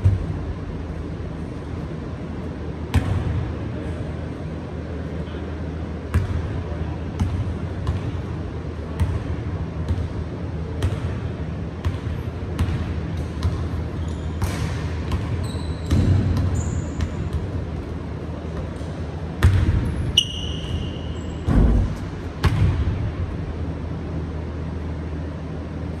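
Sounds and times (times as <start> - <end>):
steady low hum: 0.0 - 26.0
sneakers squeaking on floor: 13.4 - 17.6, 18.6 - 22.0.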